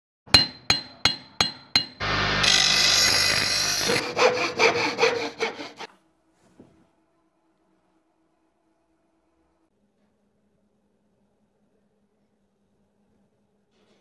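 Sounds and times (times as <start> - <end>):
saw strokes: 2.0 - 5.9.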